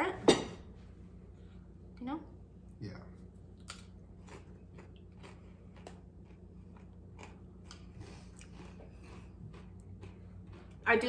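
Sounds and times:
faint chewing on crunchy chips: 3.6s - 11.0s.

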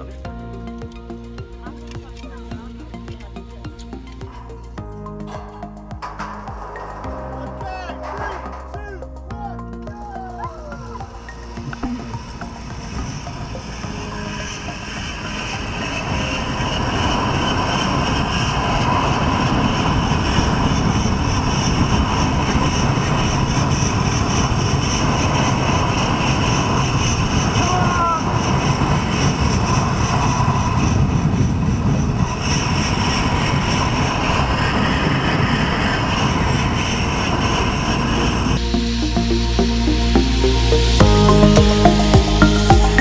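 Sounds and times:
zip-line trolley whine: 10.0s - 43.0s
wind rushing over microphone: 10.4s - 40.0s.

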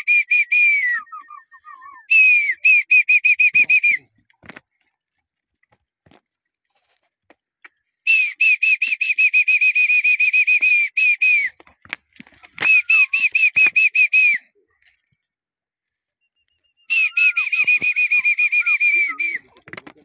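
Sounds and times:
bird whistling shrill notes: 8.1s - 11.6s, 12.6s - 14.4s, 16.2s - 19.5s.

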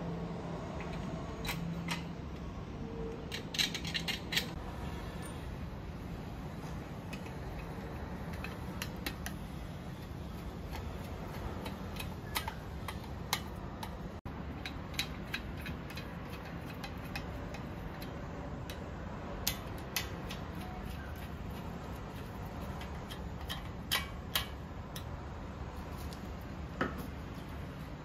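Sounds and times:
steady low hum: 0.0s - 28.0s
screwdriver metal clicks: 7.1s - 9.4s, 10.7s - 14.0s, 19.4s - 21.3s.

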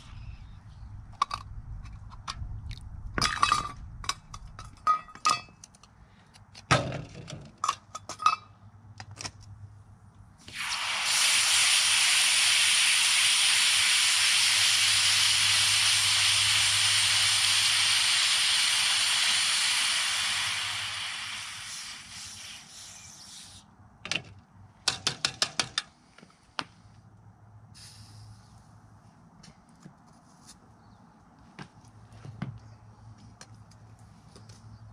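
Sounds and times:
hiss and sizzle of boiling water: 10.4s - 23.7s, 27.8s - 28.5s.

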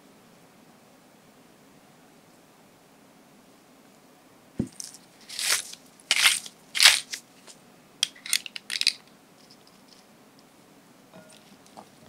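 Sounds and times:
pepper grinder crunching: 4.8s - 7.2s, 8.0s - 10.0s.

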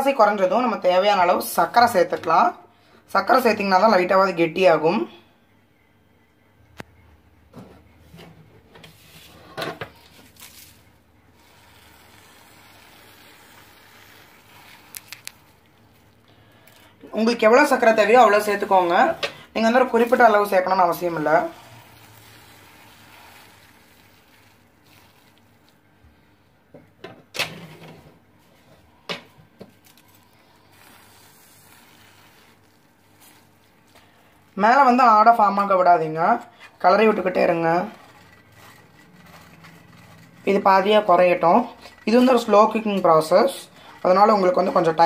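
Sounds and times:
sugar pouring into milk: 10.0s - 16.9s, 17.7s - 26.0s, 29.8s - 35.4s, 36.8s - 45.0s.

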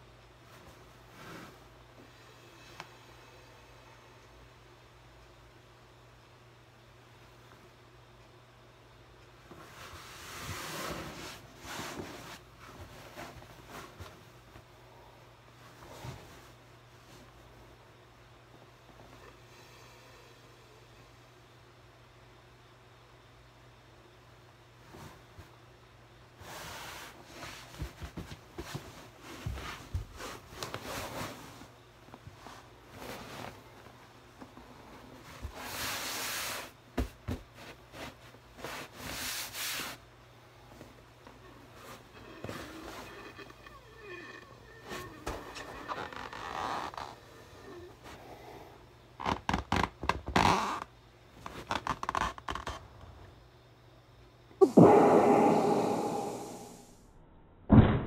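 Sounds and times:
fabric rubbing on balloon: 10.0s - 14.1s, 41.4s - 48.1s
balloon bursting bang: 54.6s - 56.9s.

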